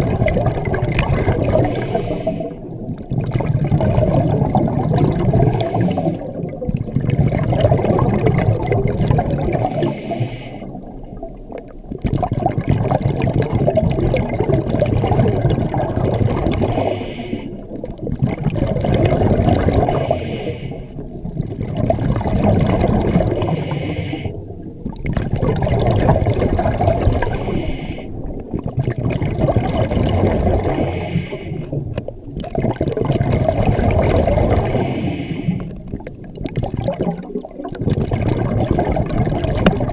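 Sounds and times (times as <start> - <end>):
gurgling exhalation bubbles: 0.0 - 39.9
diver breathing through regulator: 1.5 - 2.7, 5.4 - 6.4, 9.6 - 10.8, 16.6 - 17.7, 19.9 - 21.0, 23.2 - 24.5, 27.2 - 28.4, 30.5 - 31.8, 34.5 - 35.8.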